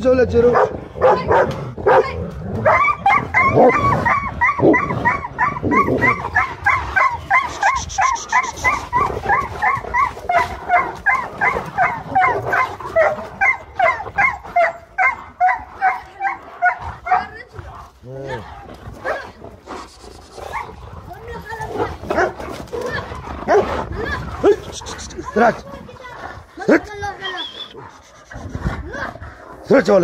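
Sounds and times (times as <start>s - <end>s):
rough low growling sound: 0.0s - 30.0s
dog yelping: 0.6s - 17.3s, 22.2s - 29.1s.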